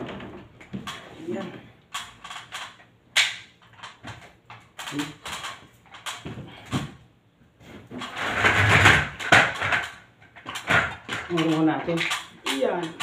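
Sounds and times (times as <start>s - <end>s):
metal ladder knocking and clattering: 7.9s - 13.0s.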